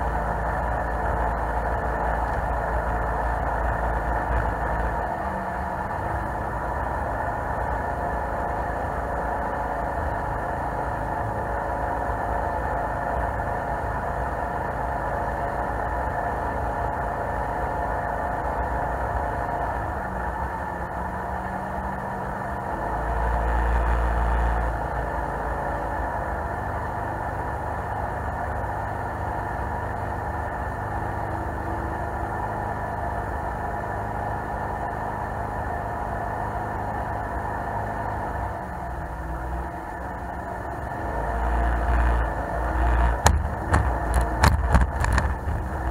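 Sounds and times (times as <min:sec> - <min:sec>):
jet boat engine running: 0:00.0 - 0:45.9
low rumble: 0:40.8 - 0:45.9.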